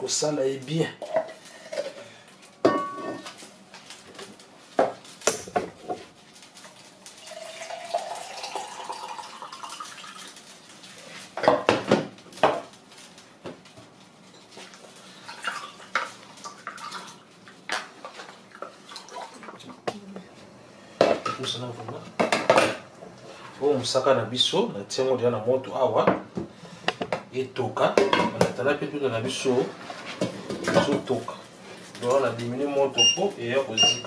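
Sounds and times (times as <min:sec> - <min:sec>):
liquid pouring into container: 0:07.2 - 0:10.4.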